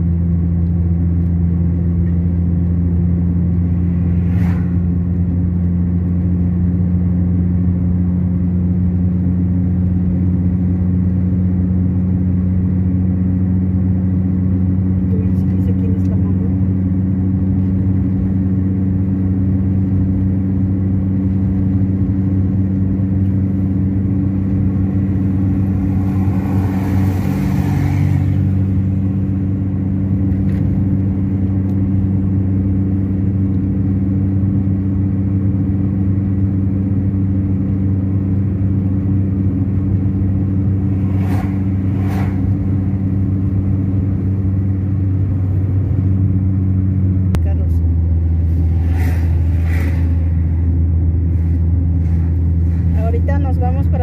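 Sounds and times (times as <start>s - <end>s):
car engine hum: 0.0s - 54.0s
road noise: 0.0s - 54.0s
brief rushing whoosh: 3.4s - 5.8s, 24.4s - 29.7s, 39.7s - 44.8s, 47.9s - 53.1s.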